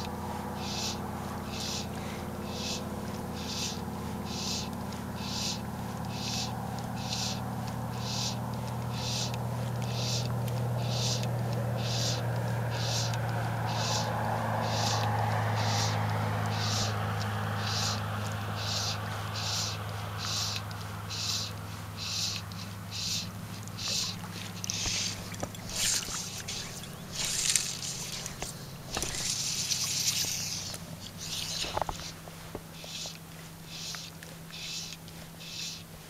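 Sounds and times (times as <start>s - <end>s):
insects calling in pulses: 0.0s - 36.0s
low steady hum: 0.0s - 36.0s.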